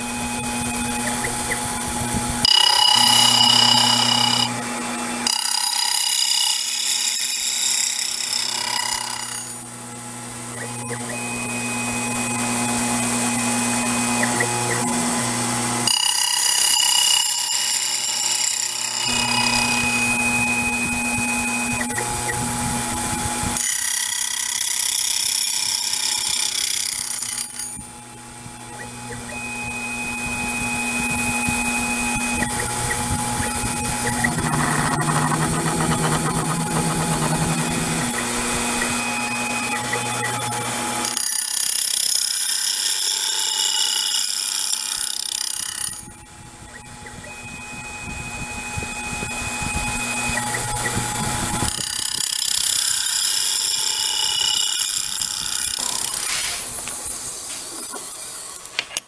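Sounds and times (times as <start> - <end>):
milling machine cutting: 0.0 - 58.8.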